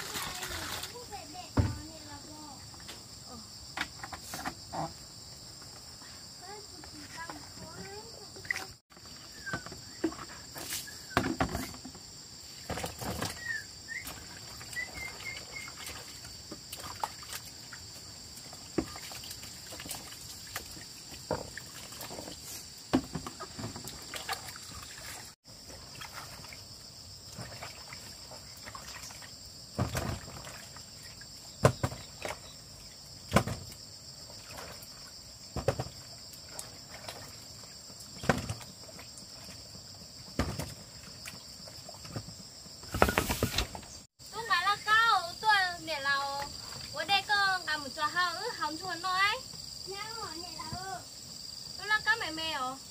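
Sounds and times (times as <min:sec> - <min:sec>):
shrill insect chorus: 0:00.0 - 0:52.9
objects knocking and clattering: 0:11.1 - 0:13.4.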